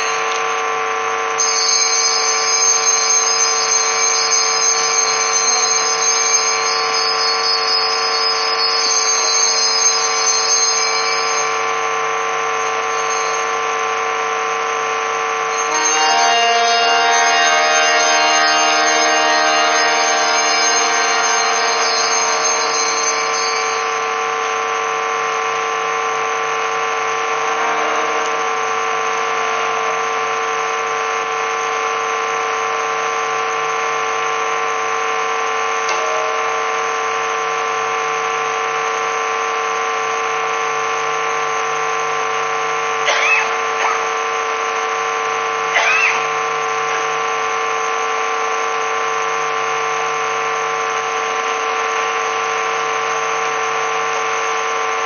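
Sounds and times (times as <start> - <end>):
drone of held tones: 0.0 - 55.0
higher sliding sounds: 15.5 - 24.2.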